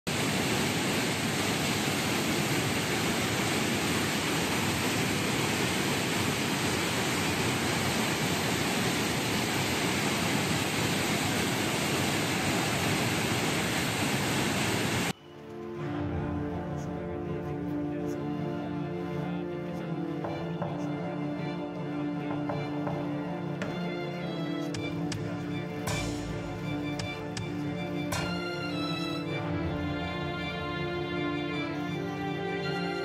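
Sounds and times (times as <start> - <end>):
floodwater rushing through sluice gate: 0.1 - 15.1, 22.1 - 33.0.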